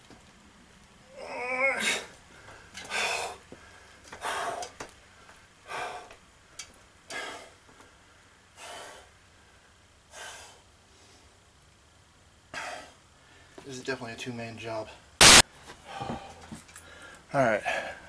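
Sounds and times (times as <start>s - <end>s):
man breathing hard: 1.8s - 6.2s, 7.1s - 11.4s, 12.5s - 13.6s, 15.7s - 18.0s.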